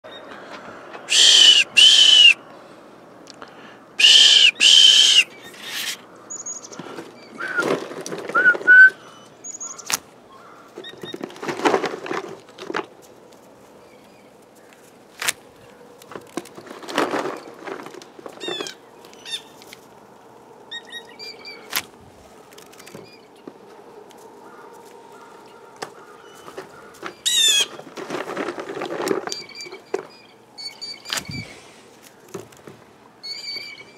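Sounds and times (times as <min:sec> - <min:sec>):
blue jays screaming calls: 0:00.1 - 0:02.4, 0:04.0 - 0:07.7, 0:08.6 - 0:11.1, 0:18.4 - 0:19.6, 0:20.7 - 0:21.8, 0:24.4 - 0:27.8, 0:33.2 - 0:33.9
soft bird calls: 0:00.1 - 0:02.5, 0:04.0 - 0:07.8, 0:08.4 - 0:11.2
rising whistled notes: 0:01.1 - 0:02.4, 0:04.0 - 0:06.0, 0:08.3 - 0:09.1.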